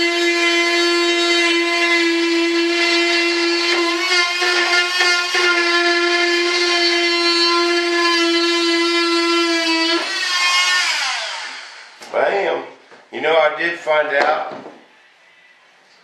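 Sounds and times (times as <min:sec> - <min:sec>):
electric cutter running: 0:00.0 - 0:12.0.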